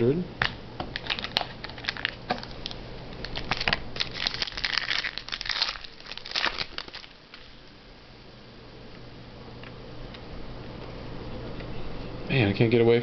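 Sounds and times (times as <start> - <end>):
plastic and card crinkling: 0.9 - 7.6.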